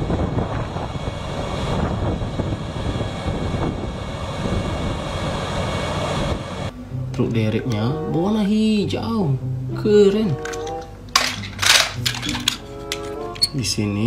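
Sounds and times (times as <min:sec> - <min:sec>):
diesel engine running: 0:00.0 - 0:06.7.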